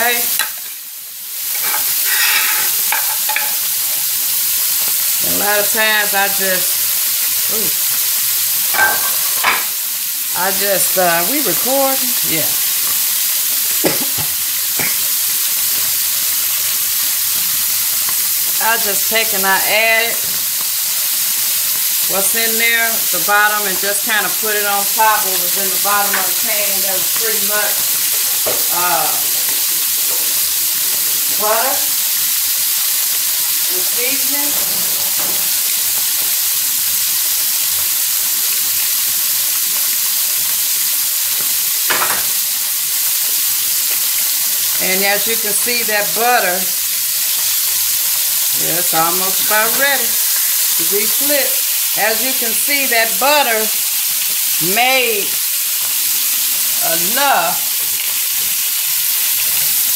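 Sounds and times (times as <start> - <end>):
fish frying in butter: 0.0 - 59.9
person speaking: 5.2 - 6.6, 7.5 - 7.8, 10.4 - 12.6, 28.6 - 29.4, 33.7 - 34.6, 56.8 - 57.6.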